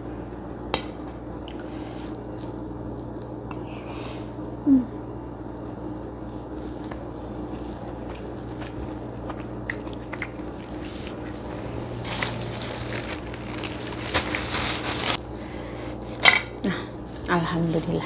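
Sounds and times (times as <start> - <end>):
low steady hum: 0.0 - 18.0
plastic bag crinkling: 12.0 - 15.2.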